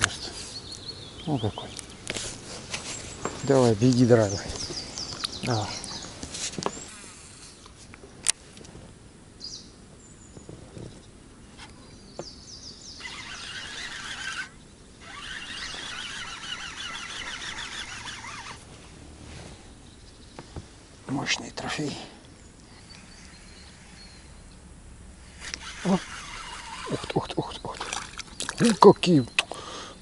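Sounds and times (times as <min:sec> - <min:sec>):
fishing reel ticking whir: 0:13.0 - 0:18.6, 0:25.2 - 0:28.8.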